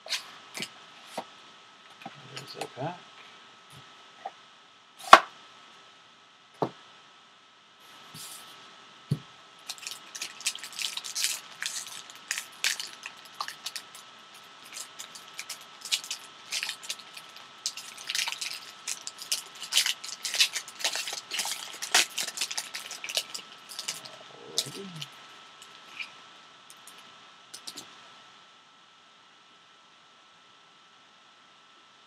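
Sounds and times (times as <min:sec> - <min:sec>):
foil wrapper tearing and crinkling: 0:09.6 - 0:24.1.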